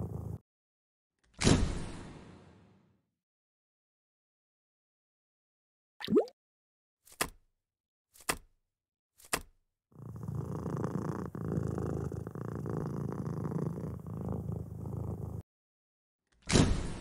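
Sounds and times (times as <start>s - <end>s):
cat purring: 0.0s - 0.4s, 10.0s - 15.4s.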